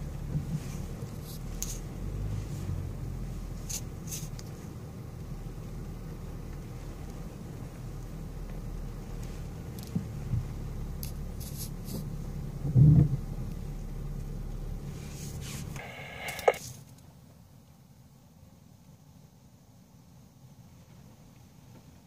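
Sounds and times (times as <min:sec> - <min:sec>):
vehicle cabin rumble: 0:00.0 - 0:16.6
windscreen wipers swishing: 0:00.0 - 0:16.6
faint hiss: 0:14.7 - 0:17.0.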